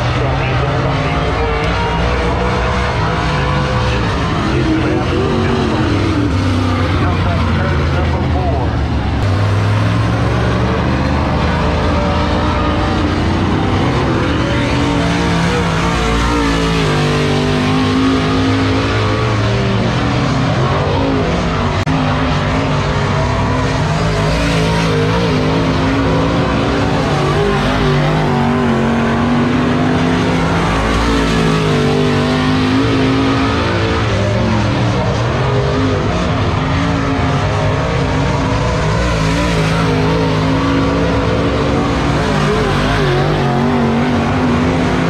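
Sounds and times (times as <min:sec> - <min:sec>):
race car engines: 0:00.0 - 0:45.0.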